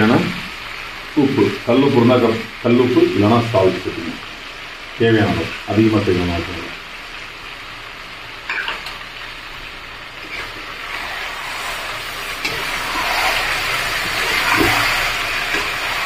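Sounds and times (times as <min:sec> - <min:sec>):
chicken sizzling in oil: 0:00.0 - 0:16.0
metal spatula scraping pan: 0:10.2 - 0:16.0.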